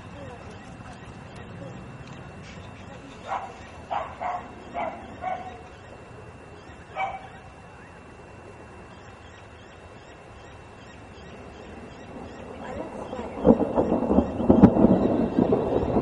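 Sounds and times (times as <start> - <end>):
faint background noise: 0.0 - 16.0
dog barking: 3.2 - 5.6, 6.9 - 7.4.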